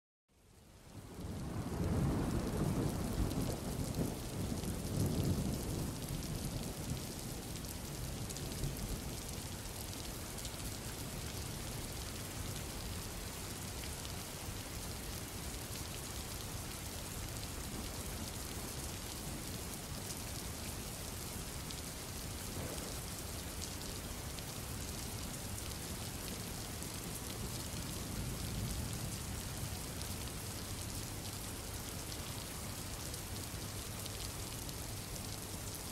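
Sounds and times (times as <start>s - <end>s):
heavy rain: 0.5s - 35.9s
low thunder rumbling: 22.5s - 23.2s.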